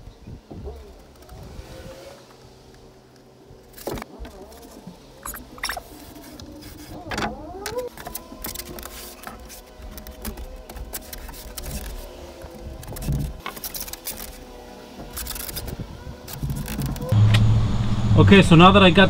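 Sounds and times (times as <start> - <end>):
foam board squeaking on plywood: 3.8 - 17.2.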